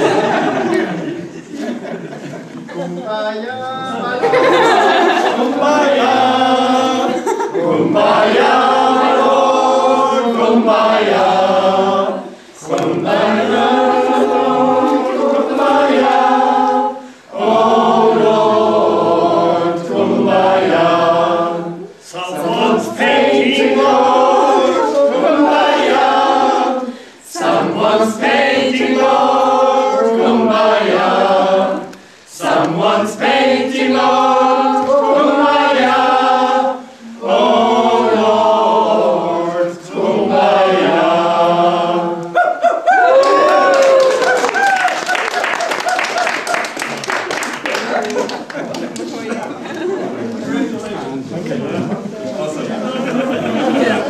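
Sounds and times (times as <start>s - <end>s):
group singing unaccompanied: 0.0s - 2.9s, 3.5s - 44.5s, 49.2s - 54.0s.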